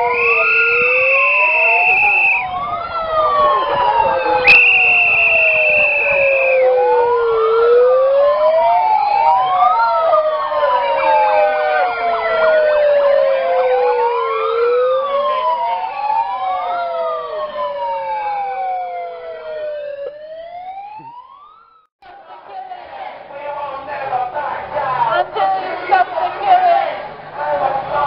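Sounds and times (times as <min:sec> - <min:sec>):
siren wails overlapping: 0:00.0 - 0:21.9.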